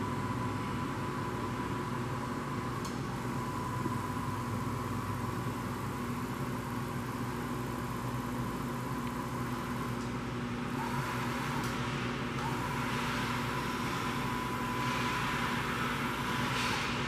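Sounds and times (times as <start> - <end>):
milling machine hum: 0.0 - 17.0.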